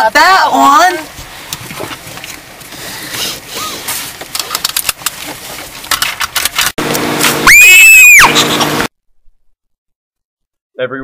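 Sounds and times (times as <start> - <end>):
seatbelt rustling and clicking: 1.6 - 6.8
loud pitched whoop: 7.4 - 8.5.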